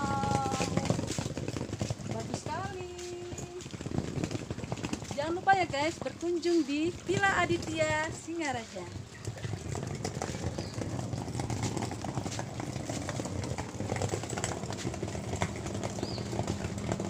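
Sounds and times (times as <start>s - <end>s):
suitcase wheels rolling on stone: 0.0s - 17.0s.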